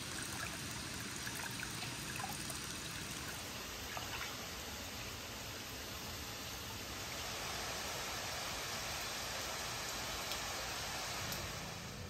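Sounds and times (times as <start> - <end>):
water pouring from spout: 0.0 - 4.5.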